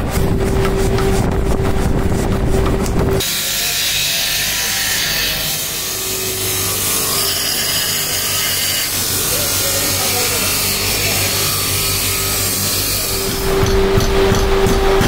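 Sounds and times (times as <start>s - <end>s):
motor hum: 0.0s - 3.4s
power hammer pounding steel: 0.0s - 15.0s.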